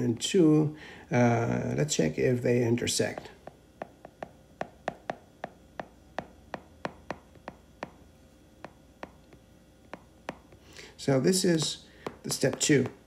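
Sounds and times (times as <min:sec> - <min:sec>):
stylus tapping on tablet screen: 0:03.0 - 0:13.0.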